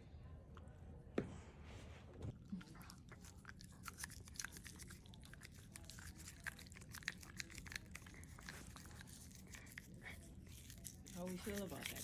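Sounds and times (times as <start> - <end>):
toothbrush clicking and scraping teeth: 2.7 - 12.0.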